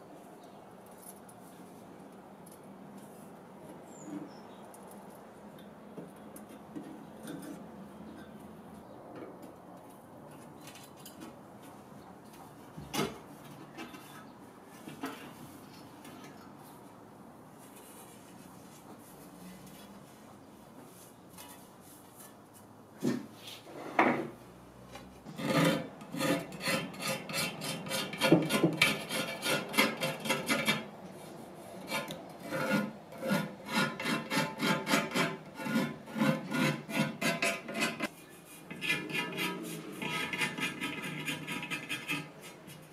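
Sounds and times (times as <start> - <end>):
knife blade scraping wood: 25.3 - 30.9, 31.8 - 42.9.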